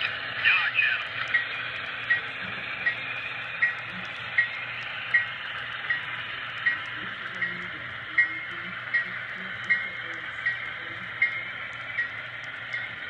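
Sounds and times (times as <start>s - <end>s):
model train wheels clicking: 0.0s - 13.0s.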